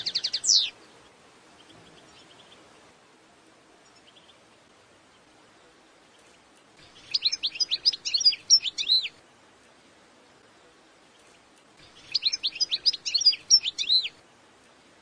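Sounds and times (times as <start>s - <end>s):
goldfinch singing: 0.0s - 2.7s, 6.1s - 9.2s, 11.1s - 14.2s
faint steady hiss: 0.0s - 15.0s.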